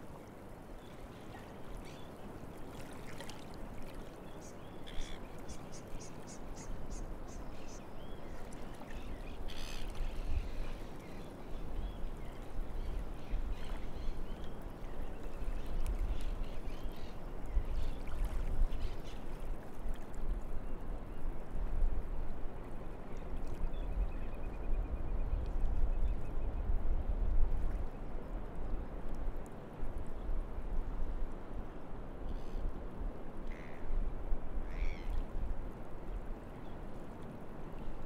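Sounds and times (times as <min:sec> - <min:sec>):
shallow water washing over mud: 0:00.8 - 0:05.5.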